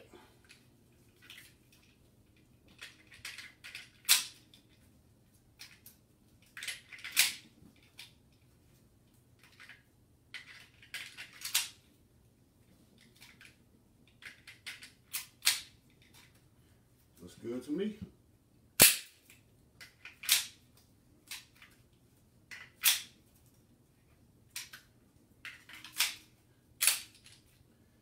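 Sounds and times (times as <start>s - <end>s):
pistol slide and trigger clicks: 22.6s - 23.2s, 25.8s - 26.2s, 26.8s - 27.3s.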